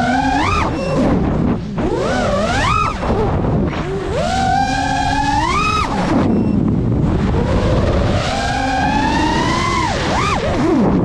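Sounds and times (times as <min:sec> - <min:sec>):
quadcopter motors whining: 0:00.0 - 0:11.0.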